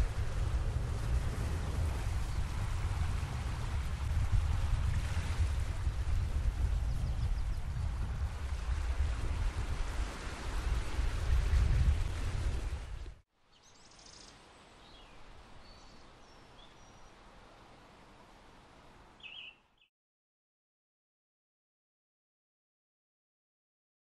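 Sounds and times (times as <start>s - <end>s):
water rushing past boat: 0.0s - 13.2s
wind rumbling on microphone: 0.0s - 13.2s
bird chirps: 13.5s - 17.1s, 19.2s - 19.9s.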